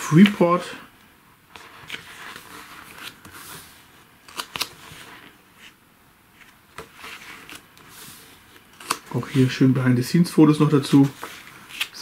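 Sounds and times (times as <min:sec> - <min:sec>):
paper pages rustling: 0:00.0 - 0:00.6, 0:01.5 - 0:05.8, 0:06.4 - 0:09.8, 0:10.6 - 0:12.0
page snapping: 0:04.3 - 0:04.7, 0:08.8 - 0:09.1.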